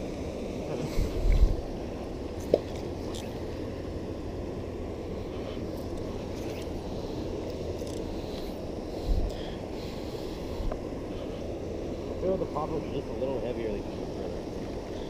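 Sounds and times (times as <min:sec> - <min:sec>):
flowing river water: 0:00.0 - 0:15.0
wind buffeting microphone: 0:00.7 - 0:02.0.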